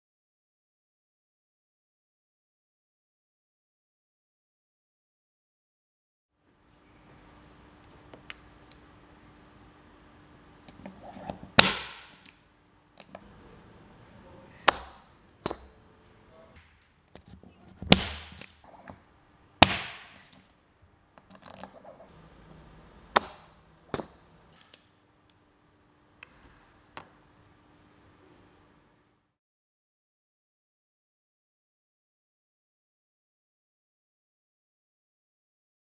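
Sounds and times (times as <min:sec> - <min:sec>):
sharp metallic snaps: 0:23.1 - 0:24.9.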